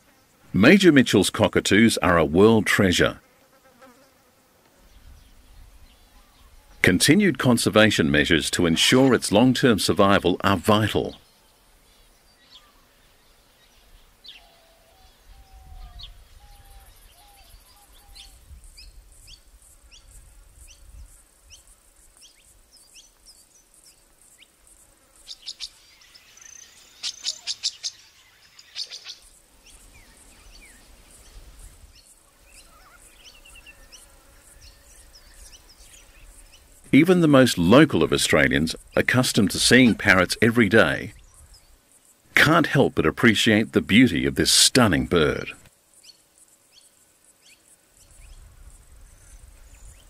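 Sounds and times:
small birds chirping: 4.8 - 6.9, 7.6 - 42.9, 43.5 - 50.0
insect fast high ticking: 16.6 - 36.9.

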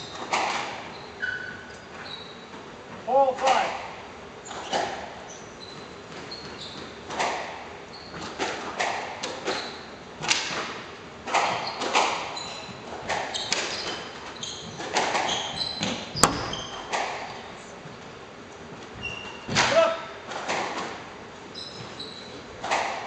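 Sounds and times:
shoes squeaking on wooden floor: 0.0 - 3.6, 4.4 - 10.0, 11.3 - 19.8, 21.5 - 22.9
squash ball impacts: 3.4 - 9.6, 10.2 - 17.4, 22.6 - 23.0.

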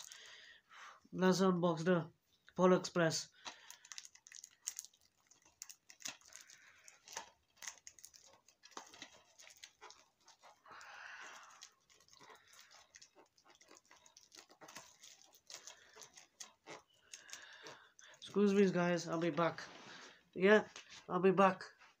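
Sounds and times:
plastic rustle: 0.0 - 0.3, 3.4 - 21.1
fingers scratching plastic wrap: 3.6 - 18.6.

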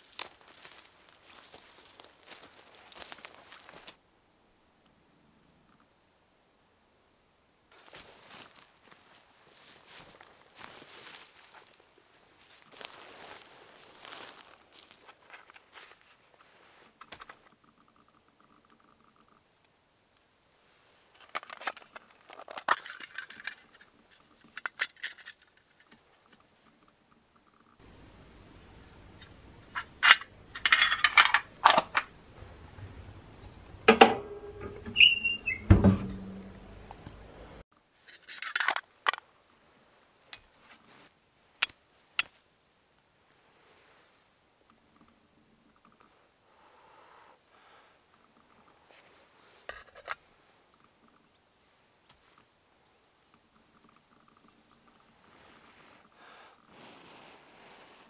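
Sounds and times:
handling rustle: 0.0 - 4.0, 7.7 - 17.6, 20.7 - 27.0
cast iron stove door clunking shut: 33.9 - 36.5
metallic clank with ringing: 33.9 - 36.6
stove door squeaking: 34.2 - 36.5
high bird chirps: 34.9 - 35.7.

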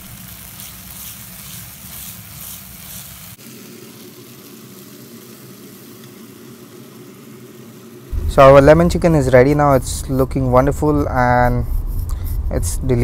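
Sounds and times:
food sizzling in a frying pan: 0.0 - 8.4
low steady hum: 8.1 - 13.0.

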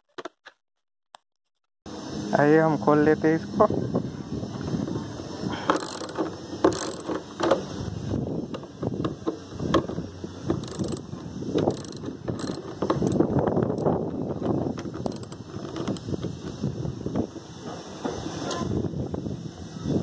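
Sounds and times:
ratchet wrench clicking: 5.6 - 7.6, 10.6 - 14.0, 15.0 - 16.1.

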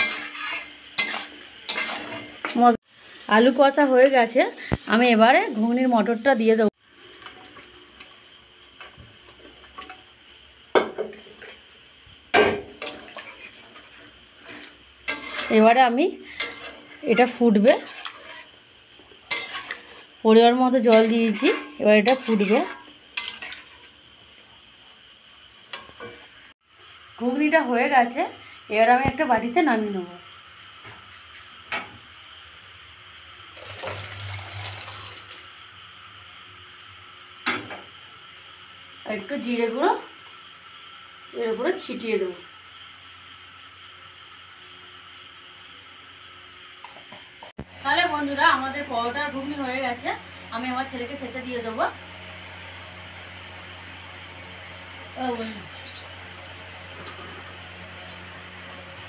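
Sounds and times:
spoon clinking and scraping pan: 0.0 - 2.7, 12.4 - 18.5, 19.3 - 20.2, 20.9 - 24.0.

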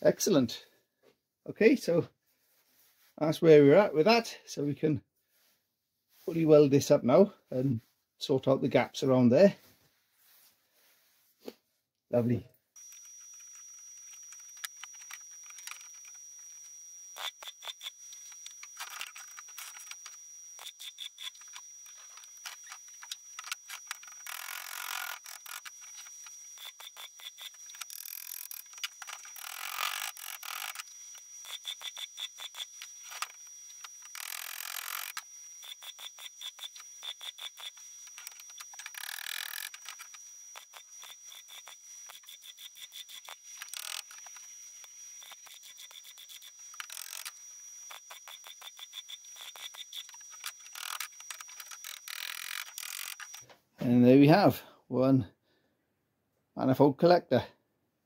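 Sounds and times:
steady high whine: 12.8 - 53.4.

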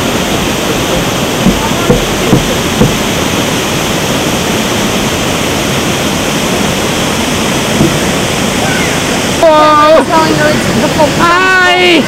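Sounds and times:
low thumps: 0.0 - 4.3, 7.6 - 8.6
waterfall rushing: 0.0 - 12.0.

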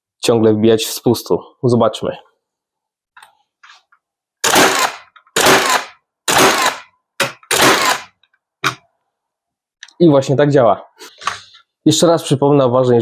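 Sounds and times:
nail gun shots into wood: 4.4 - 8.8
nailer clicks: 4.4 - 8.8.

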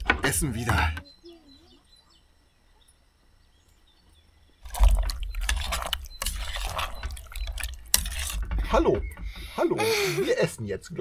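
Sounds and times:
loud clattering and knocks: 4.7 - 9.6.

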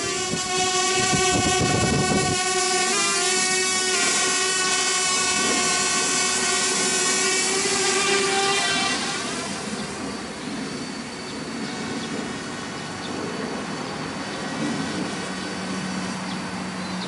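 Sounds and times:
quadcopter propellers whining: 0.0 - 17.0.

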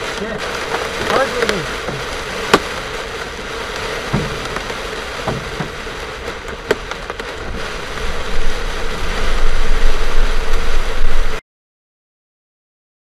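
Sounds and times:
hail and rain drumming on car: 0.0 - 11.4
hailstones cracking against glass: 0.0 - 11.4
low uneven rumble: 0.0 - 11.4.

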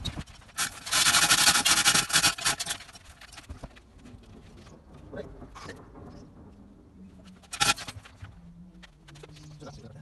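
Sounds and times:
chain hoist rattling and clicking: 0.5 - 3.5.

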